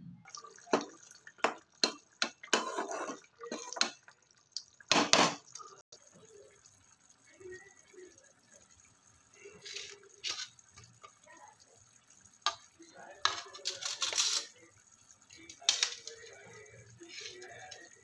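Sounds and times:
oil heating in a ladle: 0.3 - 4.4, 6.0 - 18.0
metal spatula scraping a pan: 1.4 - 4.0, 9.6 - 10.7, 17.0 - 17.9.

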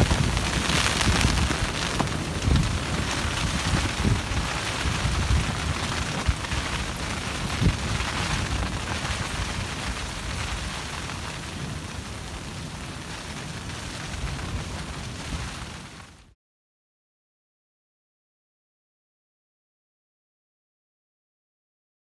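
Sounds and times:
wind buffeting microphone: 0.0 - 15.9
rain hissing: 0.0 - 16.3
campfire crackling: 0.0 - 16.4.

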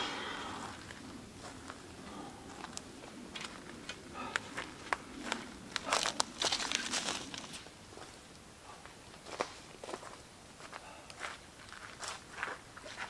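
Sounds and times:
footsteps crunching dry leaves: 3.4 - 8.2.

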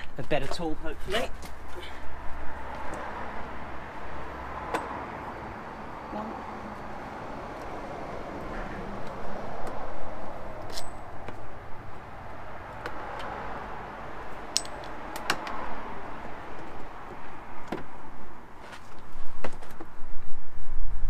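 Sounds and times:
rustling and scraping: 18.6 - 20.0.

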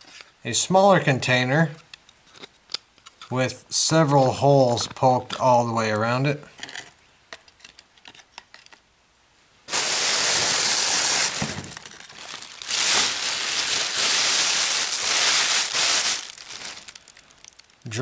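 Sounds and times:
plastic bag rustling: 9.7 - 18.0.

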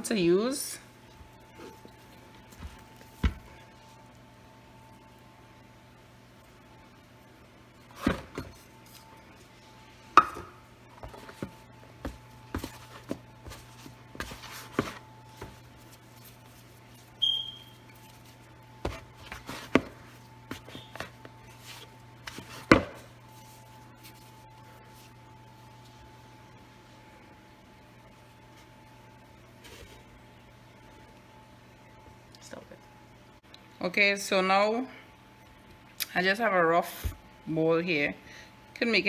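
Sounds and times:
steady low hum: 0.0 - 39.0
hands shaping sticky dough: 12.0 - 26.9.

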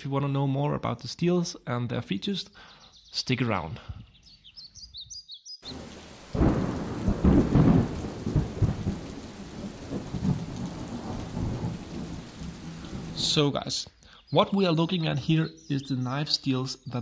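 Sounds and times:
rain falling on puddle: 5.6 - 13.4
thunder rumbling: 5.6 - 13.4.

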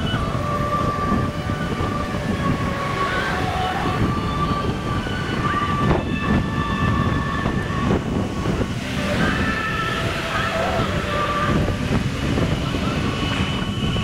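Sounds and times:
wind buffeting microphone: 0.0 - 14.0
faint thin whistling tones: 12.5 - 14.0.

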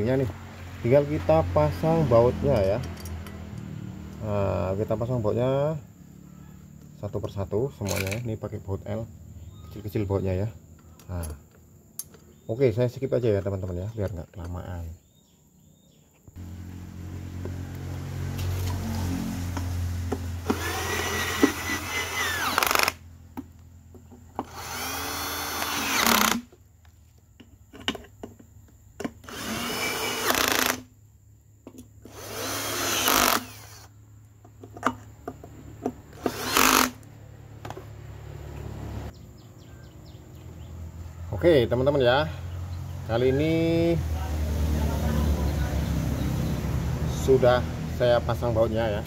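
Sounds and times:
cordless drill driving bolts: 20.4 - 23.0, 24.4 - 26.5, 29.2 - 30.9, 32.0 - 33.9, 36.1 - 37.0.

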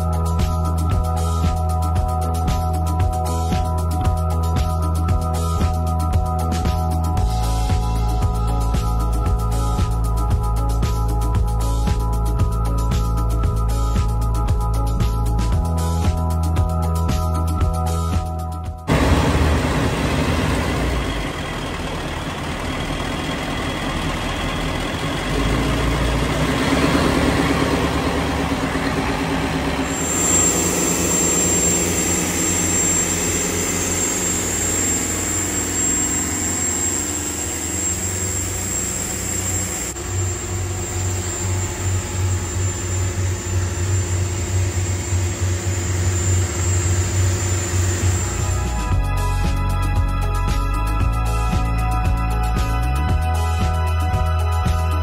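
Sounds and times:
boat engines running: 18.9 - 49.1
high-pitched whine: 18.9 - 49.5.

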